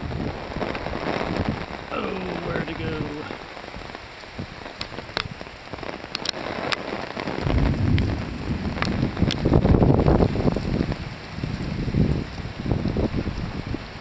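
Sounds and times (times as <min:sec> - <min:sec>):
rain falling: 0:00.0 - 0:14.0
raindrops ticking: 0:00.1 - 0:13.5
low rumble: 0:07.4 - 0:11.0.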